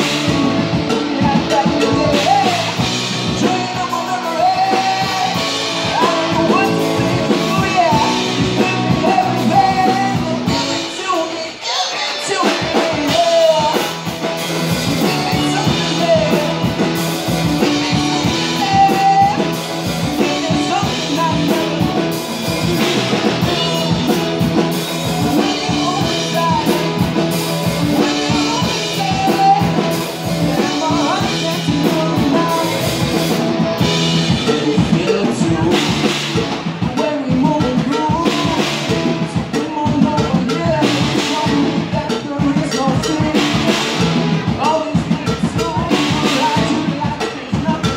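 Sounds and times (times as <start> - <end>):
live rock band playing: 0.0 - 47.9
man singing lead vocal: 0.0 - 47.9.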